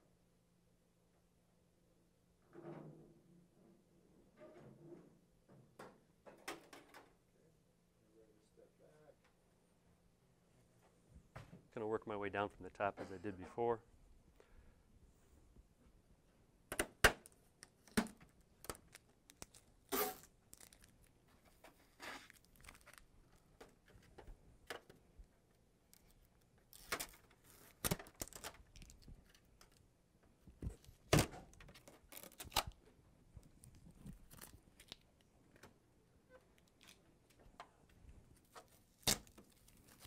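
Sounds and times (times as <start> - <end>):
packing tape ripping off plastic: 17.6 - 21.1, 21.9 - 23.1, 25.9 - 29.1, 30.8 - 32.8, 34.2 - 35.1, 38.4 - 40.0.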